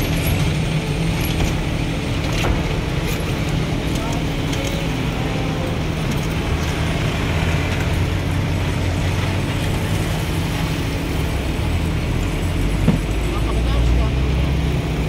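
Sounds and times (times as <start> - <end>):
heavy engine rumbling: 0.0 - 15.0
traffic noise: 0.0 - 15.0.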